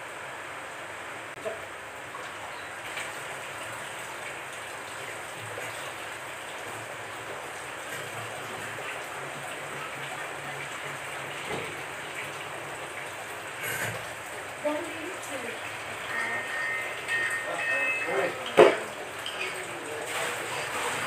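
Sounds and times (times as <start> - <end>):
water splashing into glass tank: 15.2 - 21.0.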